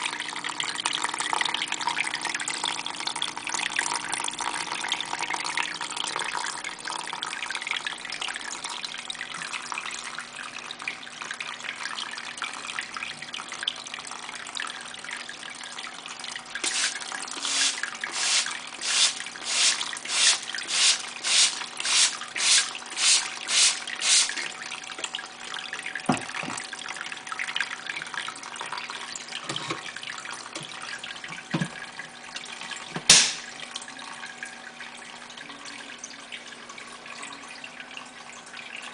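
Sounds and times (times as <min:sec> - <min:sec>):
water pump trickling: 0:00.0 - 0:38.9
sharp click: 0:33.1 - 0:33.5.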